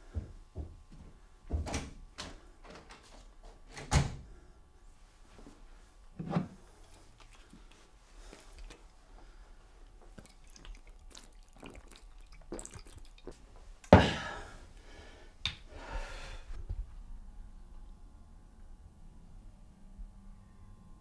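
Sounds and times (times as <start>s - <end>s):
man gulping from bottle: 6.9s - 9.0s, 9.9s - 14.4s.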